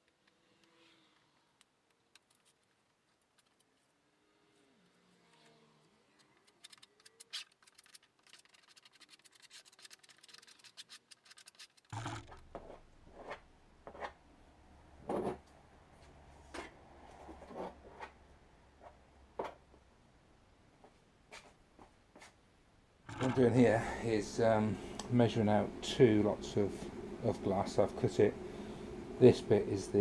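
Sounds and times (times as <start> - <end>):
low steady hum: 22.8 - 30.0.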